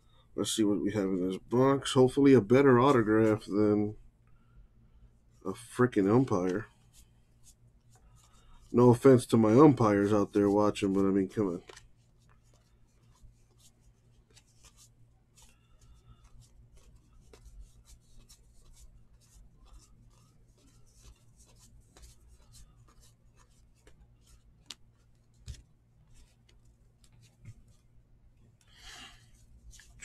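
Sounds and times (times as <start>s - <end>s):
cardboard cards rubbing and clicking: 6.0s - 27.9s, 28.5s - 30.0s.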